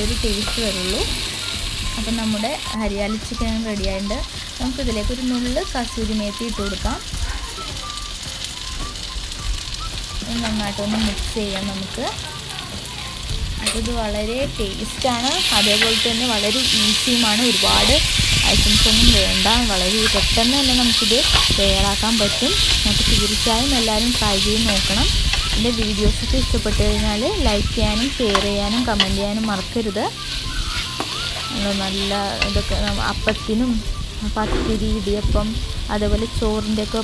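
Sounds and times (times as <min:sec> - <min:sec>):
chicken sizzling in a pan: 0:00.0 - 0:37.0
spoon scraping a pan: 0:15.4 - 0:33.1.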